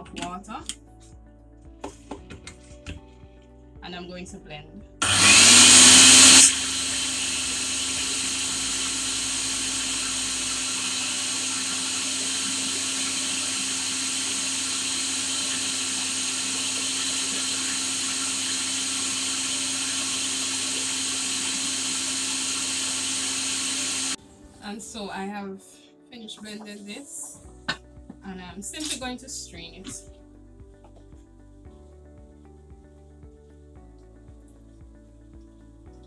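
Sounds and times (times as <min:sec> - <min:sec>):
blender running: 0:05.0 - 0:24.2.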